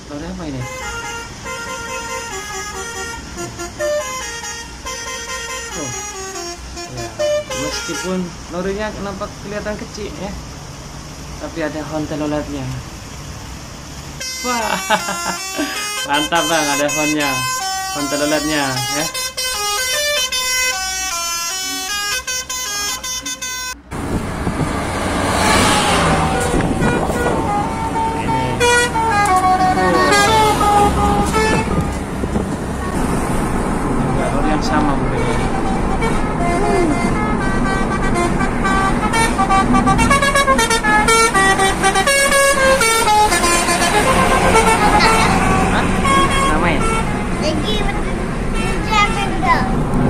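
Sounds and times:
low vehicle rumble: 0:00.0 - 0:16.3, 0:19.1 - 0:50.0
highway traffic rushing: 0:00.0 - 0:50.0
musical air horn playing a tune: 0:00.6 - 0:08.3, 0:14.2 - 0:23.9, 0:25.0 - 0:32.0, 0:35.2 - 0:47.3.

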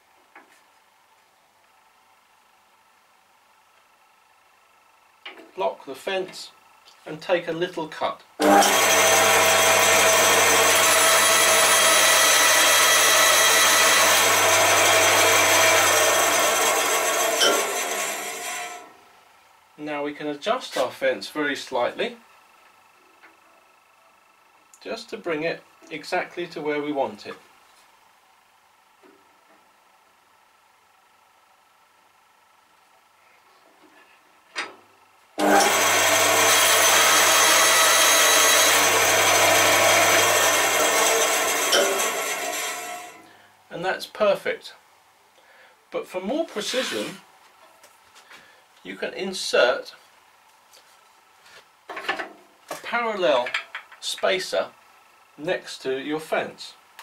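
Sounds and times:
band saw cutting wood: 0:08.4 - 0:18.9, 0:35.4 - 0:43.2, 0:46.5 - 0:47.2.

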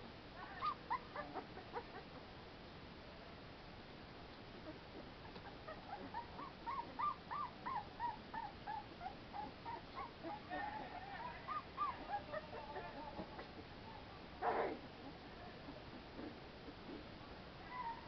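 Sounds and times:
puppies whimpering: 0:00.4 - 0:02.1, 0:04.6 - 0:13.5.

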